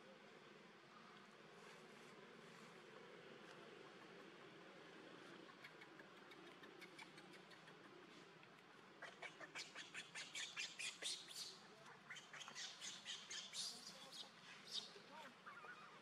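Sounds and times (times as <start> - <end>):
baby monkey squeaking cries: 15.4 - 16.0.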